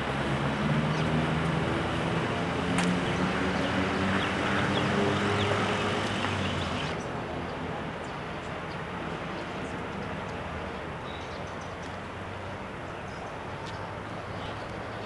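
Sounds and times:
vehicle engines humming: 0.0 - 7.1
street noise: 0.0 - 15.0.

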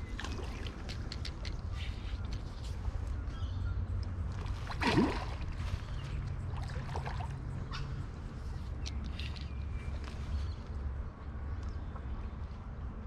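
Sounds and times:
splash on pond: 4.4 - 5.7.

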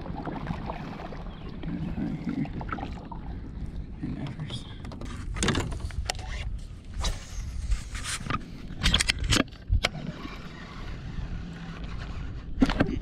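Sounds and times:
steady low rumble: 0.0 - 9.8.

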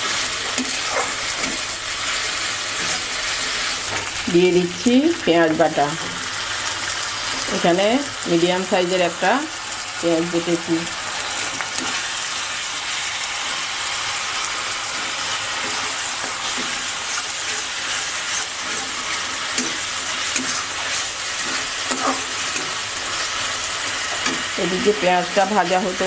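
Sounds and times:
onions sizzling in oil: 0.0 - 26.0
metal spatula scraping pan: 15.0 - 23.3.

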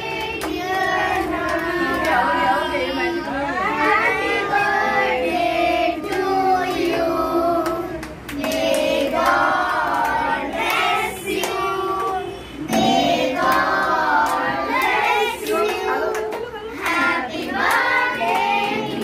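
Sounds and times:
group singing birthday song: 0.0 - 19.0
hand clapping: 0.1 - 2.4, 7.6 - 19.0.

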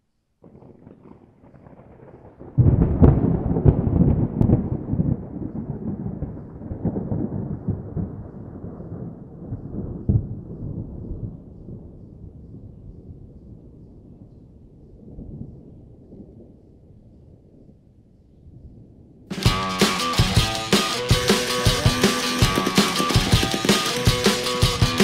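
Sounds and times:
deep thunder-like rumble: 0.4 - 14.2
sharp cracks: 19.3 - 25.0.

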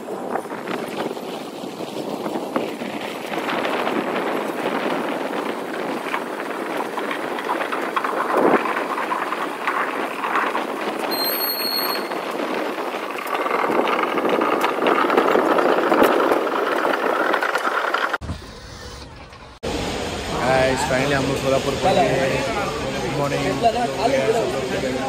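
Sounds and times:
train clattering on rails: 0.0 - 18.2.

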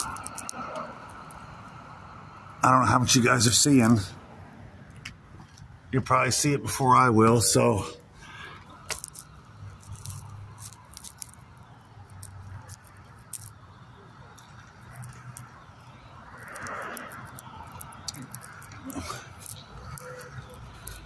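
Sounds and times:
light clicks and ticks: 0.0 - 1.8, 8.6 - 13.7, 14.3 - 21.0
faint background noise: 0.0 - 21.0.

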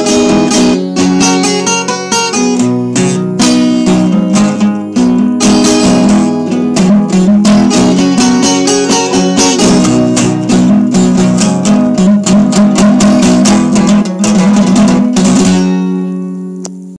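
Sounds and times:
acoustic guitar strumming chords: 0.0 - 17.0.

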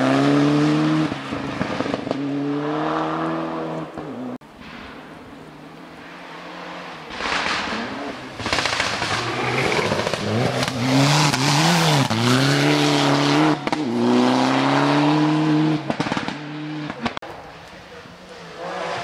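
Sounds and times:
rally car engine at high revs: 0.0 - 4.4, 6.4 - 17.2
rush of tyre noise: 0.0 - 19.0.

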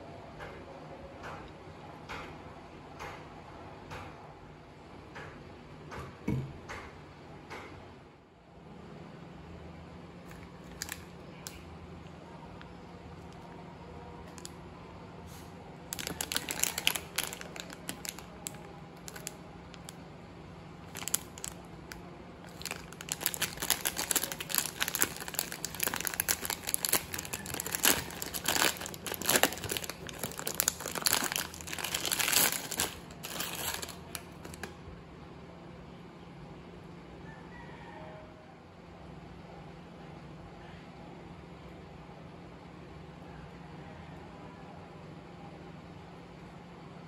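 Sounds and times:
plastic wrapper crinkling and tearing: 10.2 - 11.6, 14.3 - 14.6, 15.9 - 20.0, 20.8 - 34.8.

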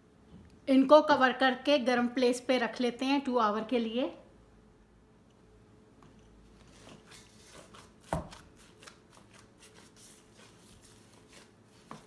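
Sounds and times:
gloved hands kneading dough: 6.3 - 12.0.

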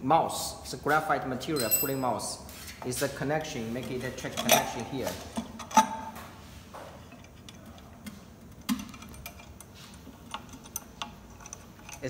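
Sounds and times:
metal clicks and knocks: 3.7 - 12.0.

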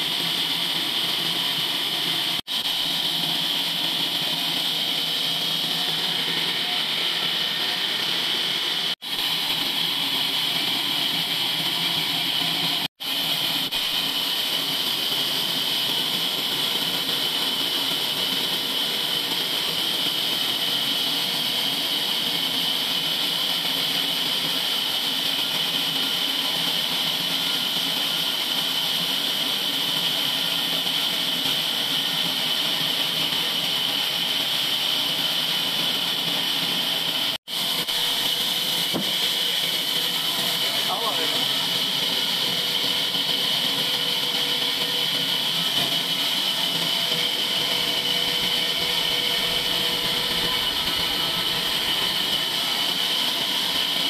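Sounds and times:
band saw cutting log: 37.8 - 54.0.

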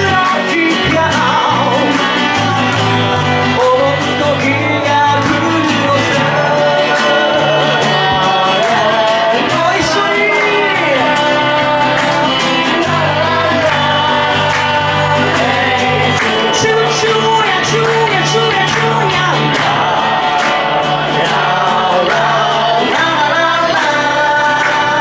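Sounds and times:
guitar-led rock music: 0.0 - 25.0
person singing: 0.0 - 25.0.

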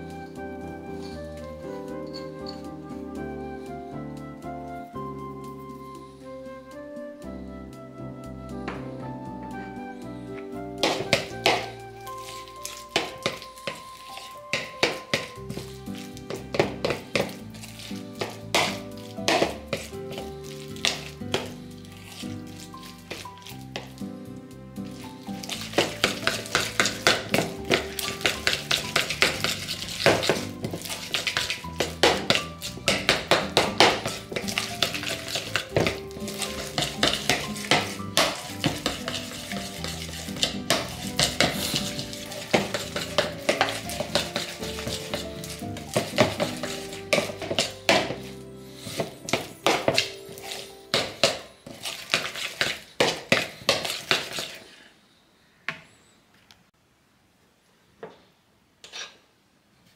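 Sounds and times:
metal spoon scraping a bowl: 10.8 - 24.0, 24.9 - 54.8.

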